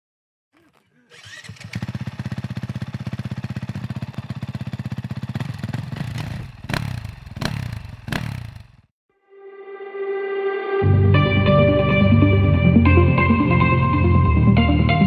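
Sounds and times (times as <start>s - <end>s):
dirt bike engine running: 0.6s - 8.9s.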